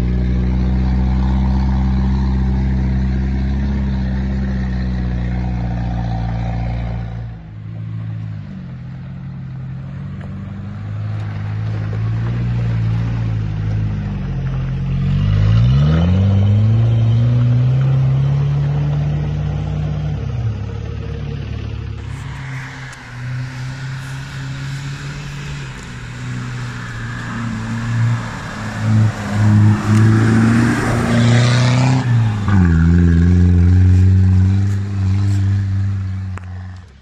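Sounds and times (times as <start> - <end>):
off-road engines revving: 0.0 - 37.0
loud churning noise: 22.0 - 35.6.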